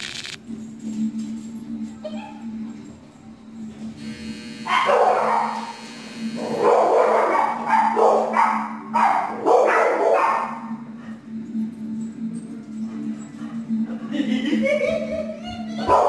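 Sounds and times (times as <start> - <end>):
dog barking: 4.7 - 5.7, 6.4 - 10.8.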